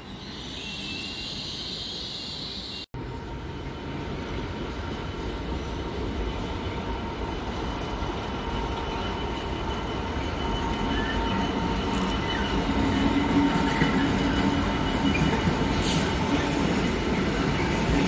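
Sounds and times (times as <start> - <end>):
diesel locomotive engine rumbling: 0.0 - 18.0
train hiss: 15.6 - 16.7.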